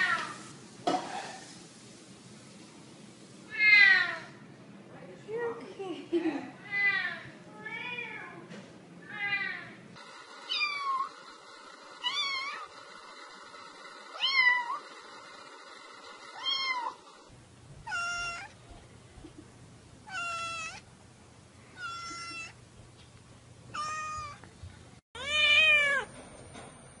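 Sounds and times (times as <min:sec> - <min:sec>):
cat meowing: 0:16.4 - 0:17.0, 0:17.8 - 0:18.6, 0:20.0 - 0:20.8, 0:21.8 - 0:22.6, 0:23.7 - 0:24.4, 0:25.2 - 0:26.1.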